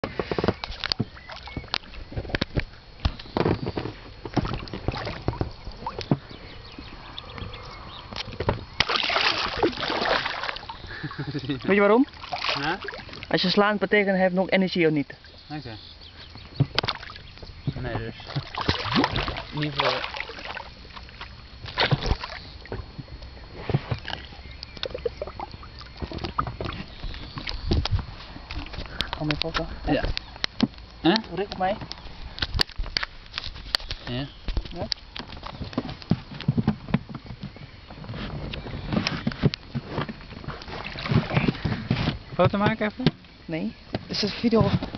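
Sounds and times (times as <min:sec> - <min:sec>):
water splashing and sloshing: 0:00.0 - 0:44.9
fish splashing at water surface: 0:08.8 - 0:11.3, 0:12.1 - 0:13.3, 0:18.3 - 0:22.6
knocks against boat: 0:16.6 - 0:19.4, 0:34.5 - 0:40.2.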